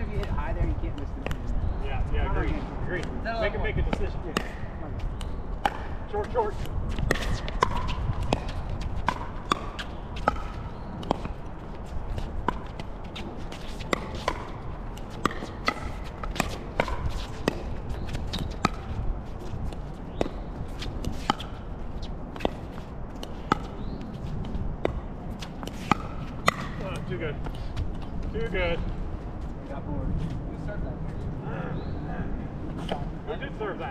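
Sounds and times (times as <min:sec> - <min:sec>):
wind rumble on microphone: 0:00.0 - 0:33.9
ball bouncing on hard court: 0:03.8 - 0:28.0.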